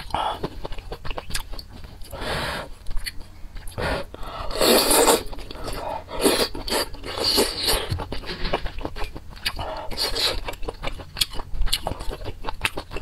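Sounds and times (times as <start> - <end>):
wet chewing: 0.0 - 13.0
slurping noodles: 3.8 - 7.8.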